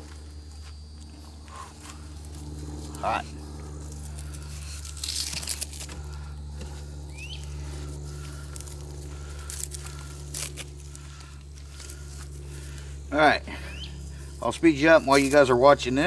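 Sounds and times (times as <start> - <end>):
steady low hum: 0.0 - 16.0
tinder crackling and rustling: 1.0 - 15.5.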